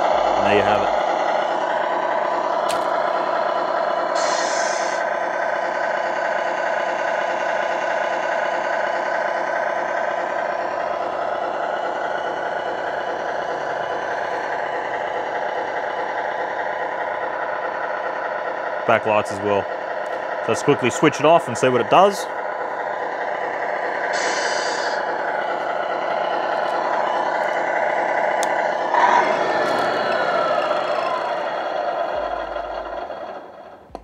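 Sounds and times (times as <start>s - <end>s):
simulated diesel engine idling: 0.0s - 34.0s
air brake hiss: 4.2s - 5.0s, 24.1s - 25.0s.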